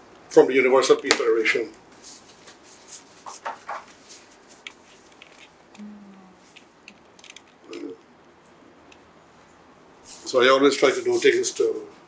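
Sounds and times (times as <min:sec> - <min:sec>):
paper folder rustling: 0:02.2 - 0:05.4.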